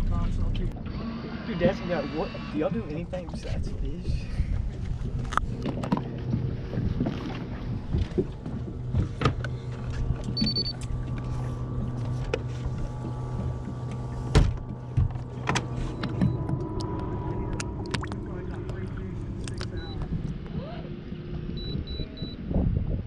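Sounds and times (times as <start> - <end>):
low mechanical hum: 0.0 - 23.0
motor mount clunks and knocks: 7.9 - 11.3, 11.9 - 16.7.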